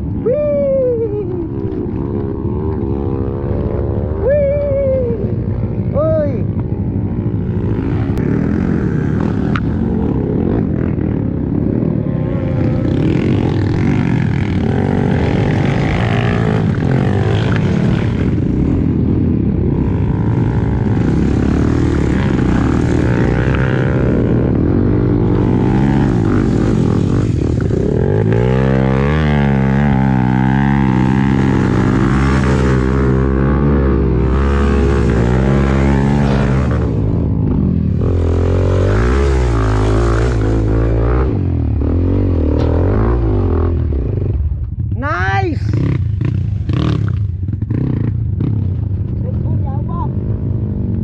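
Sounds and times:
dirt bike engine revving: 0:01.5 - 0:44.4, 0:45.6 - 0:49.4.

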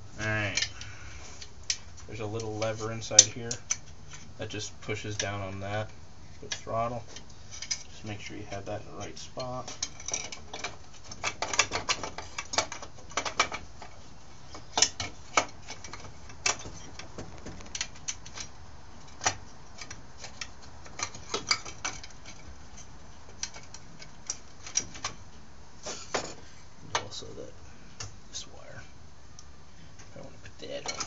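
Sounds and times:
small tools clicking and tapping: 0:09.0 - 0:25.2.

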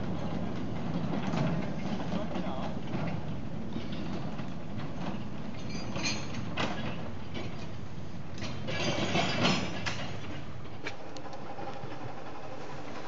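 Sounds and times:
train low rumble: 0:00.0 - 0:13.0
lever clanking and rattling: 0:00.8 - 0:07.7, 0:08.4 - 0:10.5.

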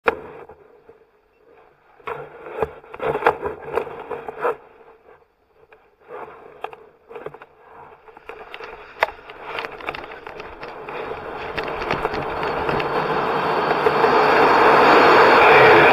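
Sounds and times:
harness gear scraping and knocking: 0:01.5 - 0:14.3.

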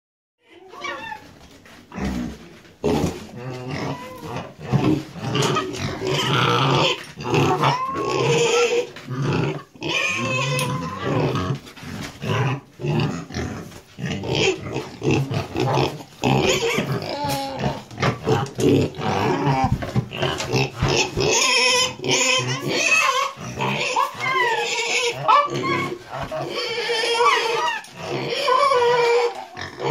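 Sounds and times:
cats growling and grunting: 0:00.4 - 0:29.9.

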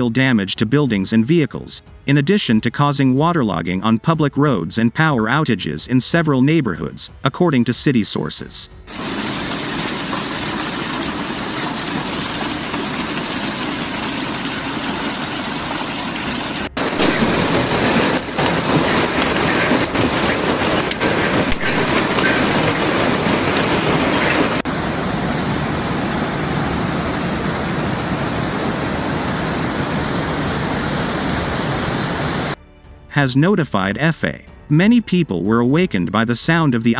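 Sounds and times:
hailstones falling on street and cars: 0:08.9 - 0:16.2, 0:16.8 - 0:24.8.

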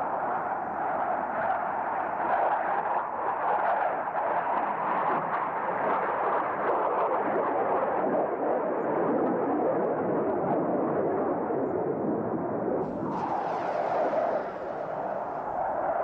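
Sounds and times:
jet aircraft flying past: 0:12.8 - 0:16.0.

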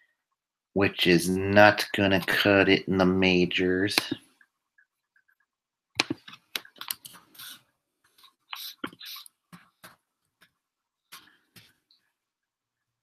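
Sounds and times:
clicks and taps: 0:04.0 - 0:07.2.

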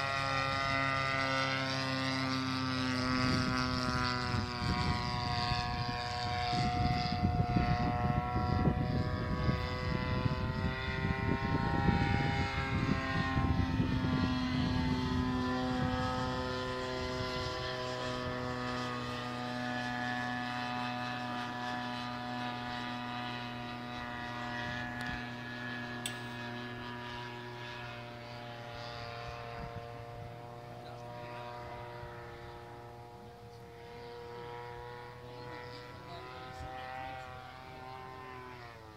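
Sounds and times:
model airplane engine droning: 0:00.0 - 0:38.9
gusty low rumble: 0:03.2 - 0:17.5.

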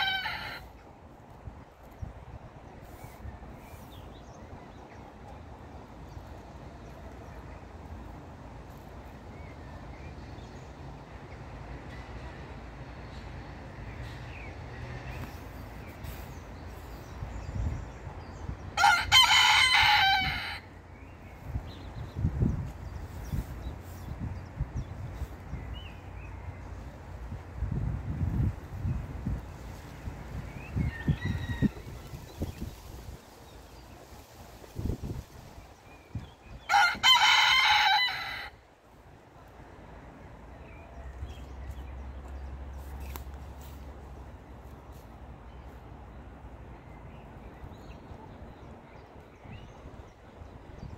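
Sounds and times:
rooster crowing: 0:00.0 - 0:00.7, 0:18.8 - 0:20.7, 0:30.8 - 0:32.0, 0:36.7 - 0:38.6.

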